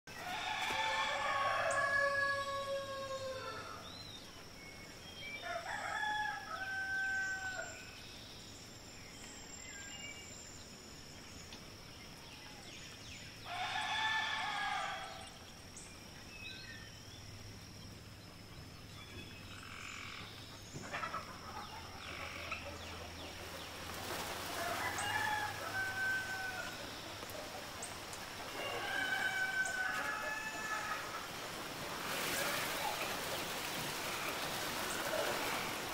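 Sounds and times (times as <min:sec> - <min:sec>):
rooster crowing: 0:00.2 - 0:03.8, 0:05.4 - 0:07.8, 0:13.5 - 0:15.2, 0:24.5 - 0:26.9, 0:28.5 - 0:31.3.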